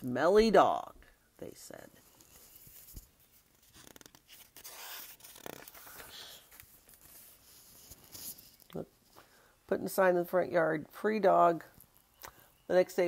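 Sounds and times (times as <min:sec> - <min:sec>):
paper pages rustling: 0:02.1 - 0:08.7.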